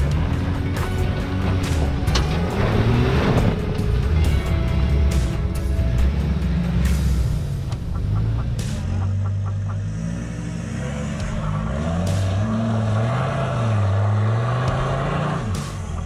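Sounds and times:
truck engine at low revs: 0:00.0 - 0:16.0.

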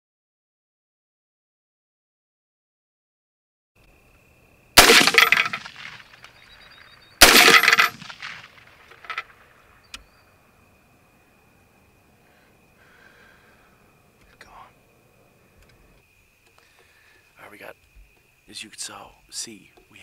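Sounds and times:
rifle shots with echo: 0:04.8 - 0:06.3, 0:07.2 - 0:09.4.

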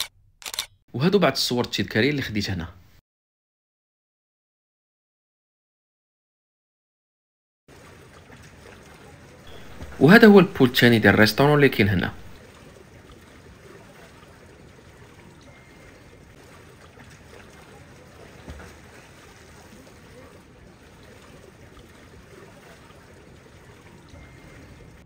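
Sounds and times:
running water: 0:07.7 - 0:25.0.

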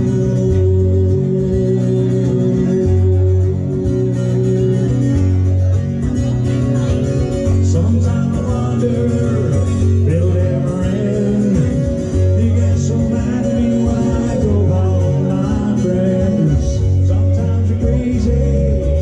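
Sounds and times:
man singing into a microphone: 0:00.0 - 0:05.6, 0:07.3 - 0:19.0
acoustic guitar strummed: 0:00.0 - 0:19.0.

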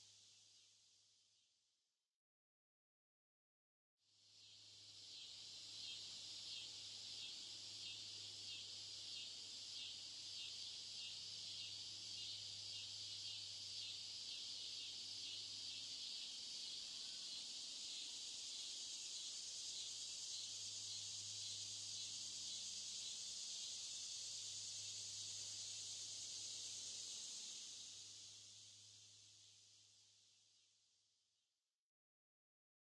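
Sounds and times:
insects chirring: 0:04.4 - 0:30.2.

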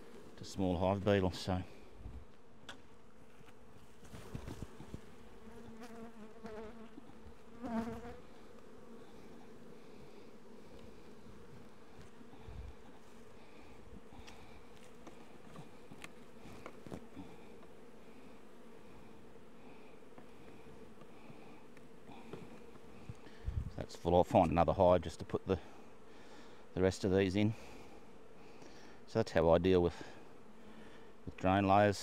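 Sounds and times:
bees buzzing: 0:01.7 - 0:23.6.

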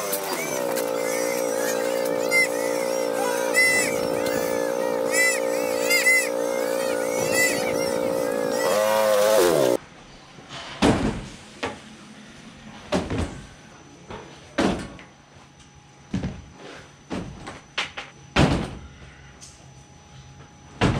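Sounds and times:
quad bike engine running: 0:00.0 - 0:09.8.

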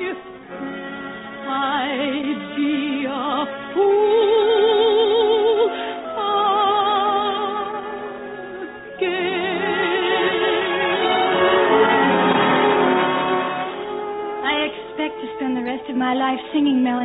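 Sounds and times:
orchestra playing: 0:00.0 - 0:04.3, 0:06.0 - 0:16.8
soprano singing opera: 0:01.4 - 0:11.9.

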